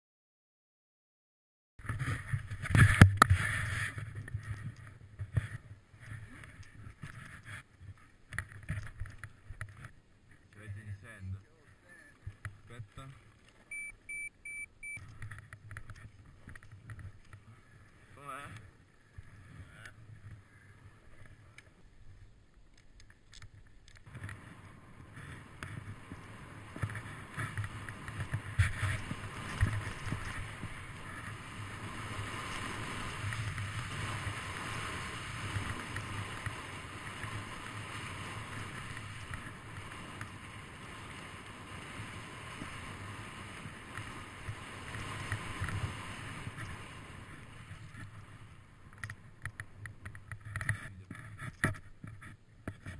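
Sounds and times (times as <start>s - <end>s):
snowboard sliding through snow: 1.8s - 8.1s, 24.1s - 49.9s.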